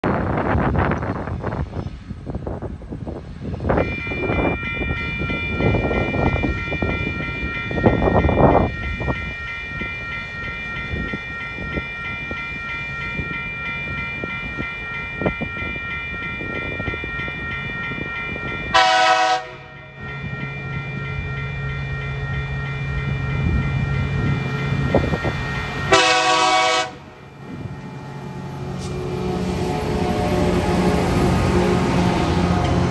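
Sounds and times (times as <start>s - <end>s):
diesel locomotive engine: 0.0s - 32.9s
train horn blasts: 18.7s - 19.7s, 25.9s - 27.1s.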